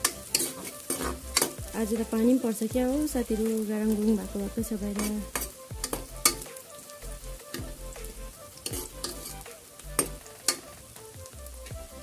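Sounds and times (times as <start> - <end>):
ladle scraping and knocking pan: 0.0 - 1.7, 4.9 - 6.5, 8.6 - 10.7
onions sizzling in hot oil: 0.0 - 12.0.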